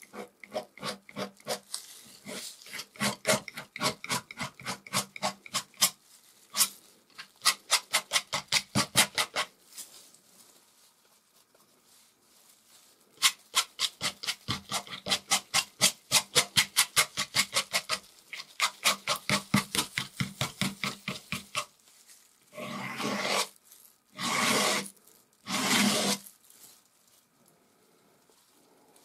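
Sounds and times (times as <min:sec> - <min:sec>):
palette knife dabbing paint: 0:00.0 - 0:01.6, 0:02.3 - 0:06.0, 0:07.4 - 0:09.5, 0:13.2 - 0:21.7, 0:24.2 - 0:24.8, 0:25.5 - 0:26.2
palette knife scraping paint: 0:00.0 - 0:06.7, 0:07.4 - 0:09.5, 0:13.2 - 0:21.7, 0:22.6 - 0:23.6, 0:24.2 - 0:26.2.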